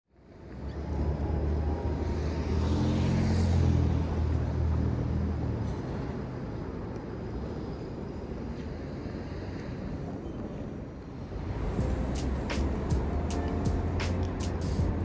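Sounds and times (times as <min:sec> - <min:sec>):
street traffic noise: 0:00.1 - 0:15.0
vehicle engine hum: 0:11.2 - 0:15.0.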